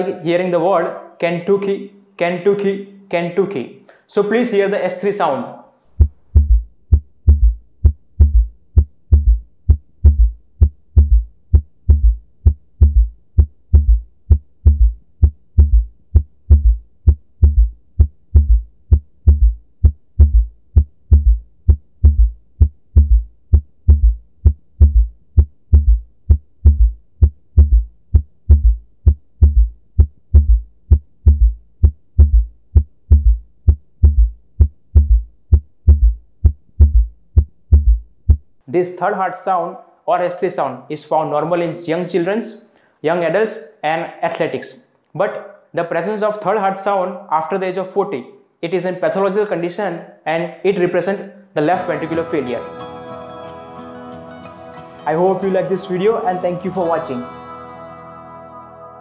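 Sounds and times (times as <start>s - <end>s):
heartbeat low thuds: 5.9s - 38.6s.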